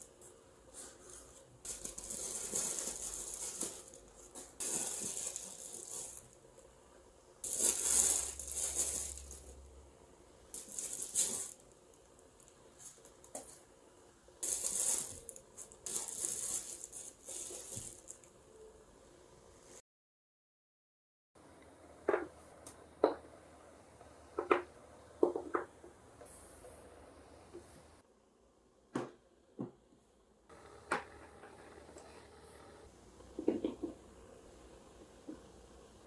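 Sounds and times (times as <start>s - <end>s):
tissue paper rustling: 0.7s - 6.4s, 7.4s - 9.6s, 10.6s - 11.6s, 14.4s - 18.2s.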